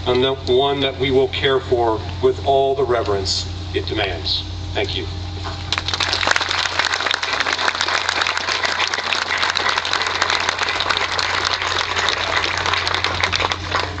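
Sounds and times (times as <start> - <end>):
low hum: 0.0 - 14.0
audience applauding: 5.7 - 14.0.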